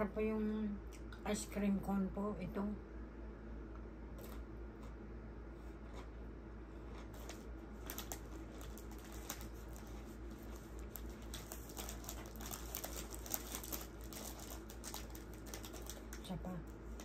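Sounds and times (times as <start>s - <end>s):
crunchy chewing: 5.6s - 6.2s.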